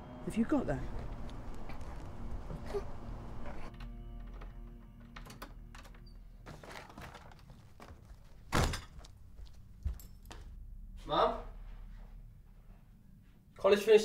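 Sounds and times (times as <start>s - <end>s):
soft background music: 0.0s - 8.5s
front door shutting: 0.6s - 9.2s.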